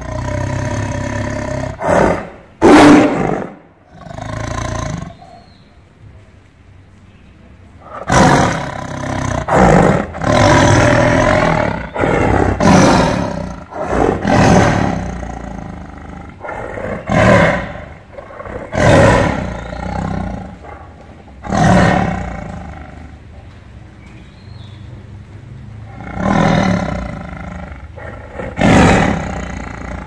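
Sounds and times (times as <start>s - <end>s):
tiger roaring: 0.0s - 5.5s, 7.8s - 23.4s, 25.8s - 30.0s.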